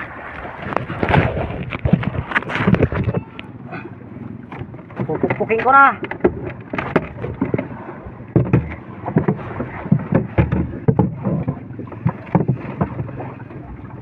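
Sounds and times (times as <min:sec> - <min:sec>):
wind: 0:00.0 - 0:14.0
dull knocks on wooden boat: 0:04.5 - 0:07.7, 0:08.3 - 0:13.2.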